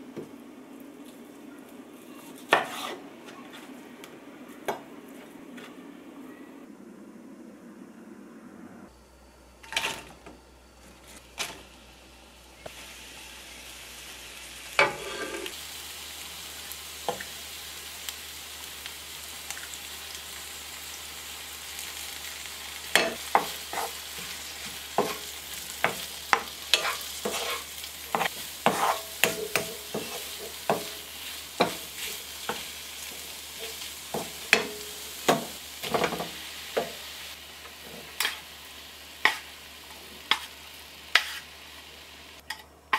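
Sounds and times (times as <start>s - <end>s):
wooden spoon scraping pan: 2.4s - 3.7s, 14.8s - 15.6s, 23.3s - 32.8s, 41.2s - 41.5s
vegetables sizzling in oil: 9.0s - 42.9s.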